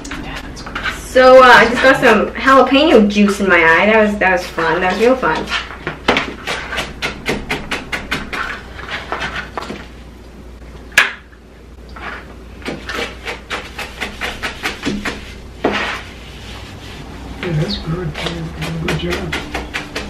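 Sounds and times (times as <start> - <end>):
knife chopping on plastic mat: 5.0 - 9.8, 12.6 - 16.0, 17.4 - 20.0.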